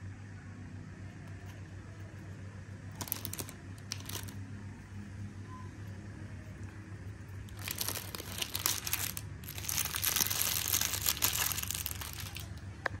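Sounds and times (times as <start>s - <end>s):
plastic wrapper crackling: 2.9s - 4.4s, 7.3s - 13.0s.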